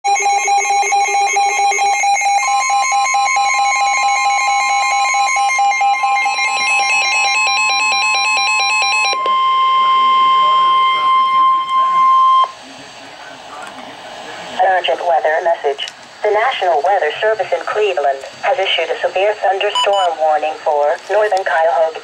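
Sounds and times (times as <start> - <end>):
alert radios beeping: 0.1 - 12.6, 14.6 - 22.0
steady warning alarm tone: 0.1 - 12.6, 18.5 - 20.7.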